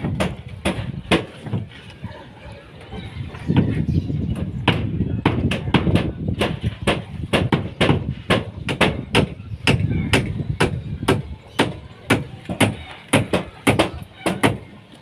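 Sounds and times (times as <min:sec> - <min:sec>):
hammer striking nails into wood: 0:04.7 - 0:14.6.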